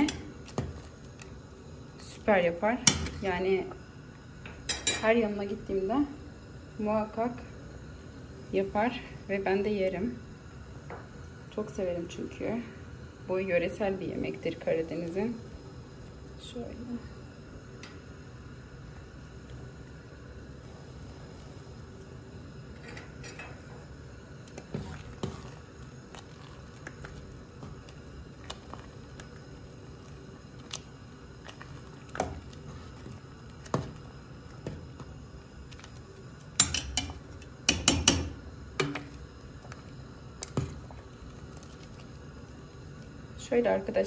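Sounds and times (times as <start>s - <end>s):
metal spoon stirring in pot: 22.7s - 39.8s
spoon clanking against pot: 36.6s - 39.1s.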